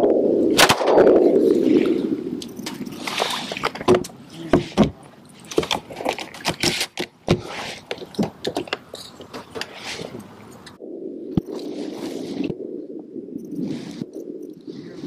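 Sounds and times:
handling clicks and knocks: 0:03.6 - 0:10.8.

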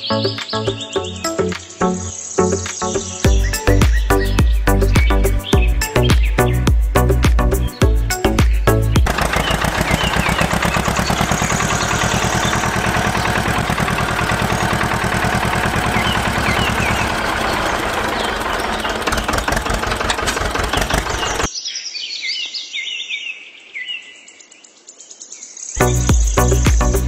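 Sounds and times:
birds chirping: 0:00.0 - 0:27.0
tractor engine chugging: 0:09.0 - 0:21.5.

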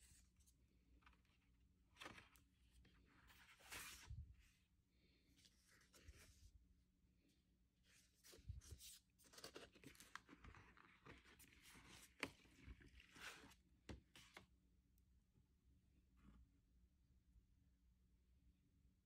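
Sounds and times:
paper sleeve rustling: 0:01.0 - 0:04.5, 0:07.9 - 0:13.6.

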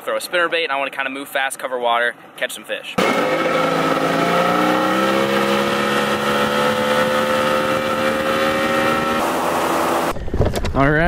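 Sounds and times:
outboard motor running fast: 0:03.0 - 0:10.2
boat wake rushing: 0:03.1 - 0:10.2.

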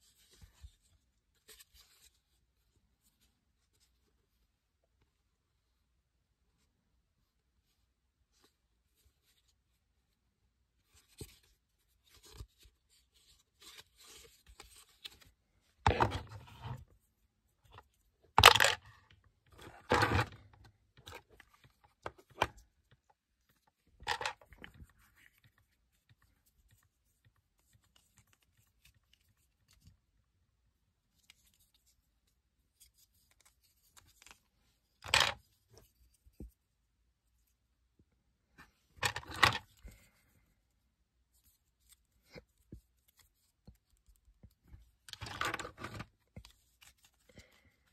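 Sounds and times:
plastic parts clattering and scraping: 0:15.8 - 0:16.8, 0:17.8 - 0:22.6, 0:24.0 - 0:24.8, 0:35.0 - 0:35.4, 0:38.9 - 0:40.1, 0:45.1 - 0:46.5.

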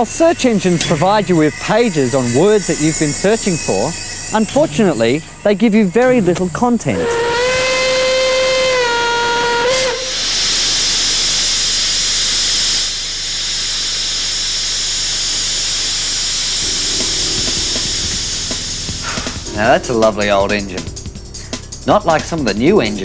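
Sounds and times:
steam venting hiss: 0:00.0 - 0:23.0
steam locomotive whistle blast: 0:06.9 - 0:11.7, 0:16.6 - 0:21.5.

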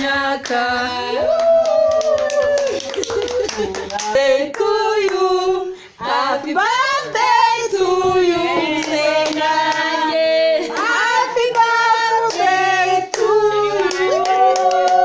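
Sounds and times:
women and children singing: 0:00.0 - 0:15.0
hand clapping: 0:01.4 - 0:04.7, 0:13.1 - 0:15.0.

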